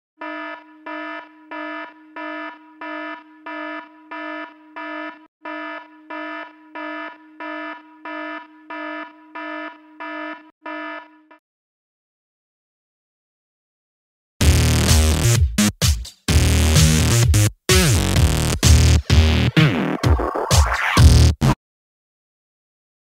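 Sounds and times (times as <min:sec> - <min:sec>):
electronic alarm beeping: 0:00.2 - 0:11.4.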